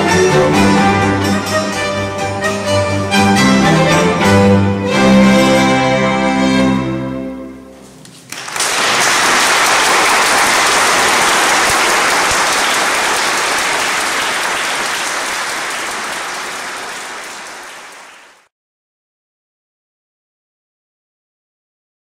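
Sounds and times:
audience applauding: 0:08.1 - 0:18.5.

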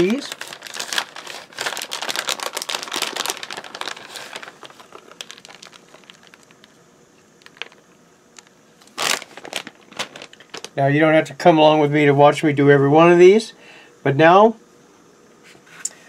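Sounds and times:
plastic bag crinkling: 0:00.0 - 0:10.9.

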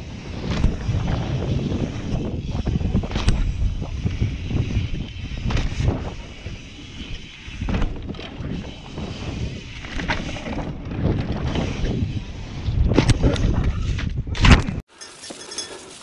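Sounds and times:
wind buffeting microphone: 0:00.0 - 0:14.8
bike tyres rumbling on dirt: 0:00.0 - 0:15.2
bike knocking over bumps: 0:07.6 - 0:08.6.

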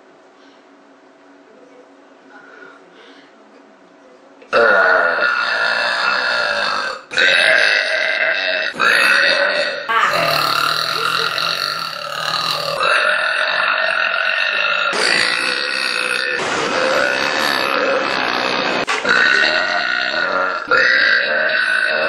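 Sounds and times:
woman burping loudly: 0:04.5 - 0:22.0.

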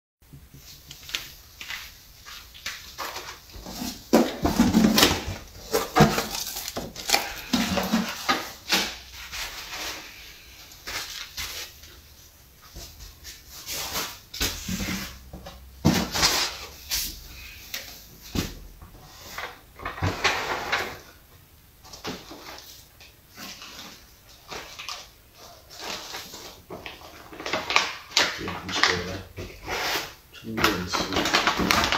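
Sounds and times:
packing clattering and rustling: 0:01.0 - 0:10.2, 0:29.8 - 0:31.9
plastic bags crinkling: 0:01.0 - 0:12.0, 0:23.4 - 0:29.3, 0:30.4 - 0:31.9.

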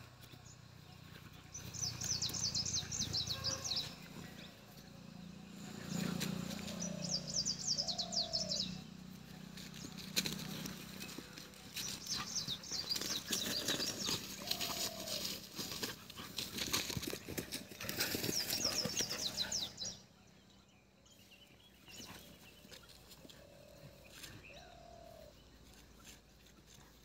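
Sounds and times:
dogs scuffling in leaves: 0:09.6 - 0:19.2.

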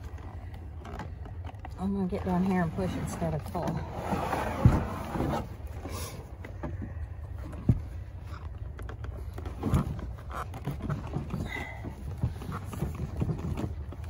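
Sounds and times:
low steady rumble: 0:00.0 - 0:14.0
leather handling knocks and rubs: 0:07.4 - 0:14.0.

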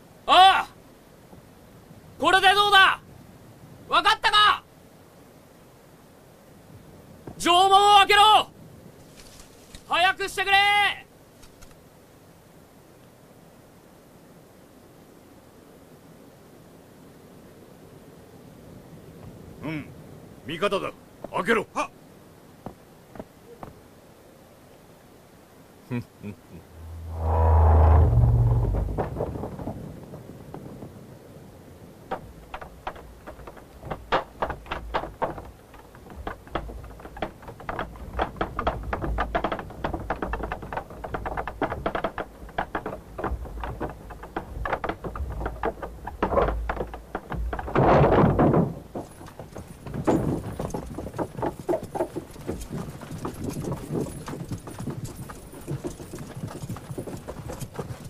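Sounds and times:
horses' hooves clopping: 0:22.6 - 0:23.9, 0:26.7 - 0:58.0
heavy low thud and rumble: 0:26.8 - 0:30.2.

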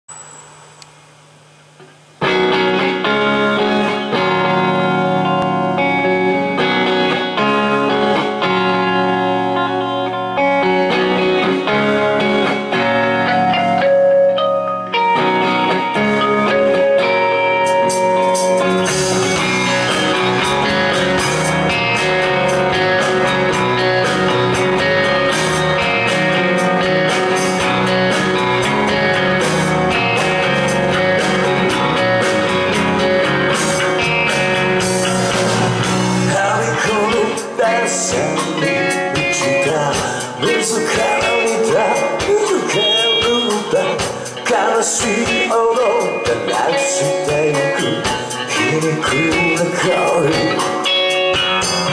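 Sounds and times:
crashing cymbals: 0:00.1 - 0:01.2
rock band playing: 0:02.2 - 0:51.9.

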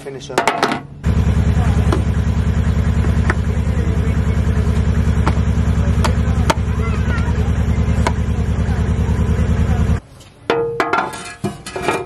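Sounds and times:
low engine drone: 0:00.9 - 0:10.0.

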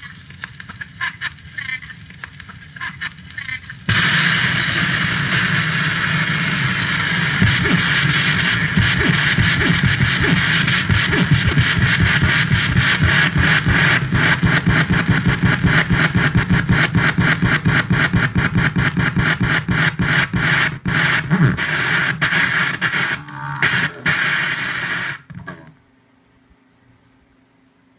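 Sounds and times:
vinyl record crackling: 0:00.0 - 0:25.8
low hum: 0:03.9 - 0:25.8.

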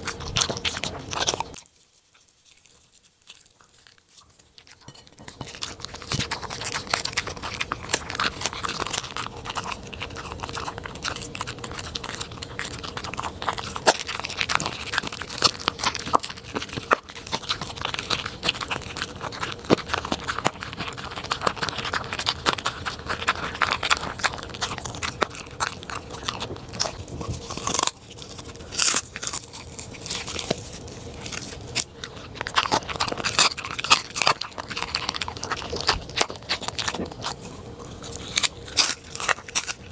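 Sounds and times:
dog crunching food: 0:00.0 - 0:39.9.

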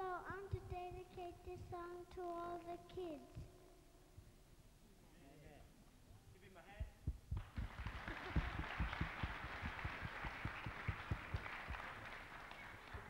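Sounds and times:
dull low thumps: 0:06.8 - 0:11.4
audience applauding: 0:07.4 - 0:13.0.

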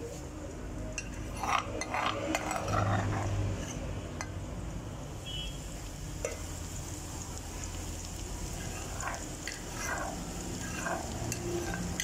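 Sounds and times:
metal spoon scraping a mortar: 0:01.0 - 0:03.9, 0:08.5 - 0:12.0.

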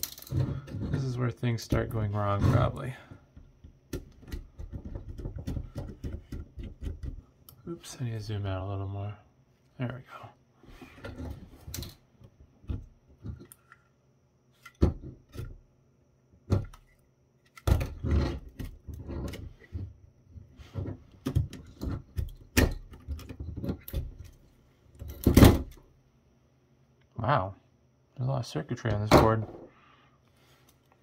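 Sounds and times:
plastic parts clicking and clattering: 0:00.0 - 0:01.0, 0:01.6 - 0:07.2, 0:11.0 - 0:12.0, 0:20.7 - 0:24.4.

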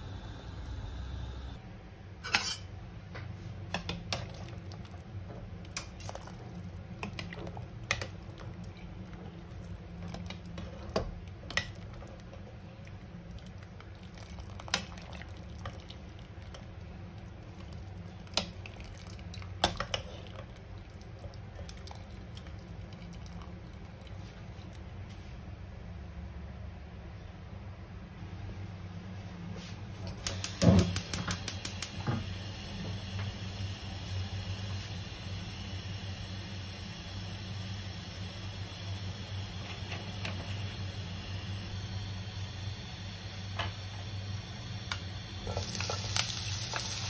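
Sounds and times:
low hum: 0:00.0 - 0:01.9.

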